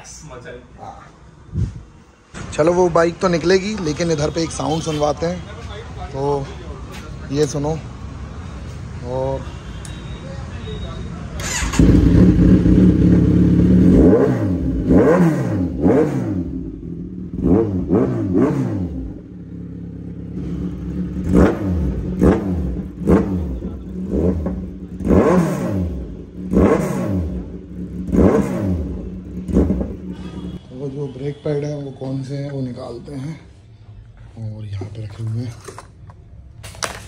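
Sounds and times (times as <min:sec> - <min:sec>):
motorcycle engine revving: 0:11.4 - 0:30.6.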